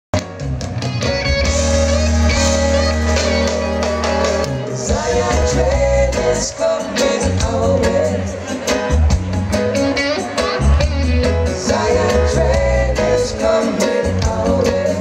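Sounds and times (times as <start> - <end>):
keyboards: 0.1 - 15.0
reggae band playing: 0.1 - 15.0
deep steady bass line: 0.2 - 15.0
women backing singers singing: 4.8 - 8.2.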